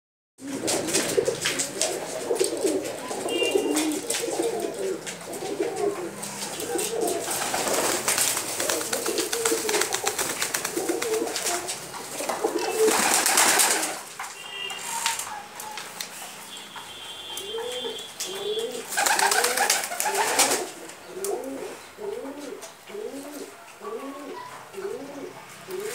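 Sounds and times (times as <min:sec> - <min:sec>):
pigeons cooing: 0:00.4 - 0:14.1, 0:17.2 - 0:25.9
loud rustling flurry: 0:00.4 - 0:14.2
wings flapping: 0:00.4 - 0:14.2, 0:18.2 - 0:20.8.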